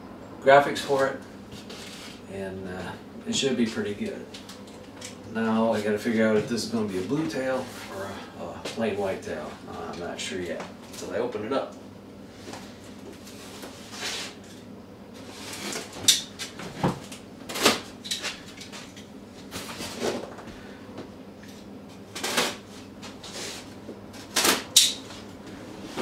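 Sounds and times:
cardboard rustling and scraping: 0:12.4 - 0:14.4.

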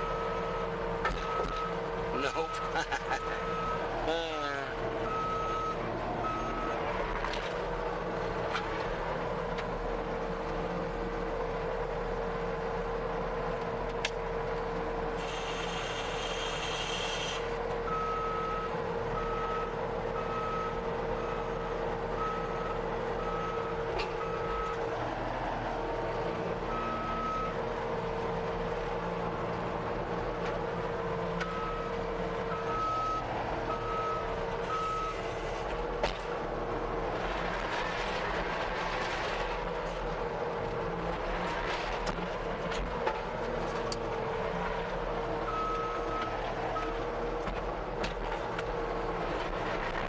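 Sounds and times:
engine running steadily: 0:00.0 - 0:50.0
reversing alarm beeping: 0:05.0 - 0:06.8, 0:32.5 - 0:35.4
short bursts of hiss: 0:15.2 - 0:17.5.

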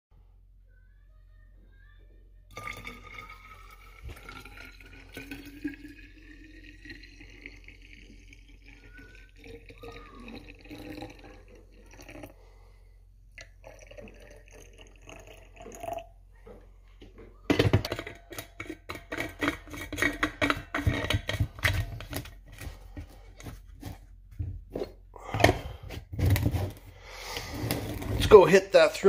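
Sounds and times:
coffee pouring into flask: 0:02.5 - 0:12.7, 0:13.4 - 0:16.2, 0:17.6 - 0:24.1.

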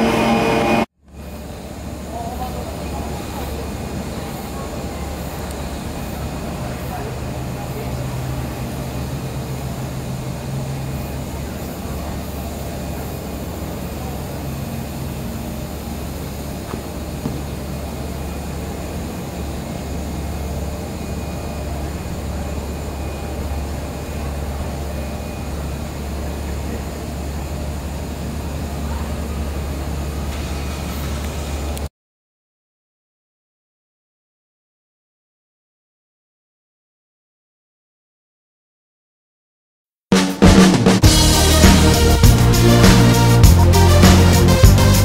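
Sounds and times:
faint hum: 0:00.0 - 0:31.8
cable car machinery rumble: 0:00.0 - 0:31.9, 0:41.0 - 0:45.0.

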